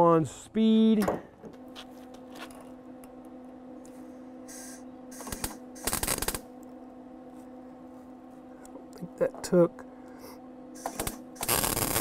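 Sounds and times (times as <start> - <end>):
welding arc crackling: 4.5 - 6.5, 10.8 - 12.0.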